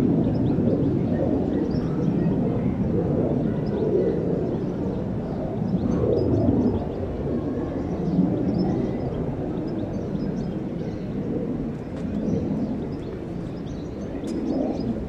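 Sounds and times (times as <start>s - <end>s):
small birds chirping: 0.2s - 15.0s
steady low rumble: 4.5s - 15.0s.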